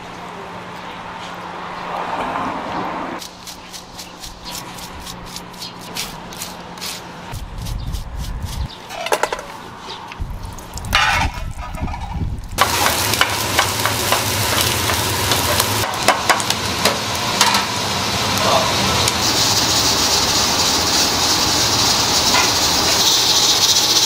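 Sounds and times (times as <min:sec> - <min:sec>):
spatula clicking and scraping: 0:03.2 - 0:09.3
food sizzling in oil: 0:12.6 - 0:24.0.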